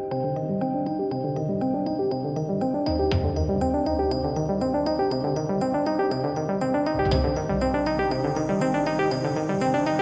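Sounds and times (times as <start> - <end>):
cymbal crash and deep bass: 7.0 - 9.0.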